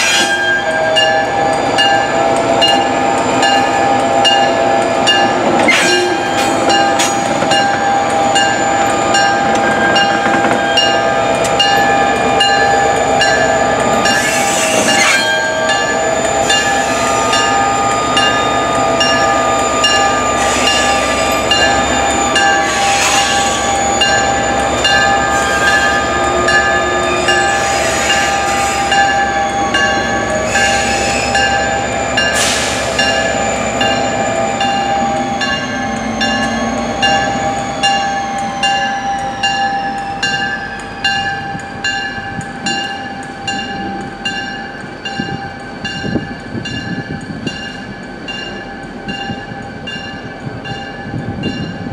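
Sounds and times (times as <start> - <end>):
diesel locomotive engine whine: 0.0 - 51.9
bell ringing: 0.2 - 14.2.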